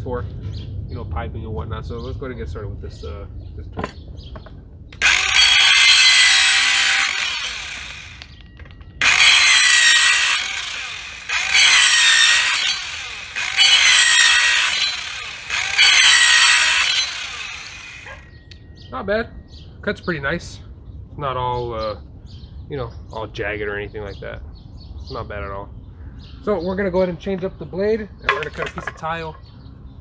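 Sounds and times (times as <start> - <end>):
circular saw cutting plastic: 5.0 - 8.4, 9.0 - 18.3.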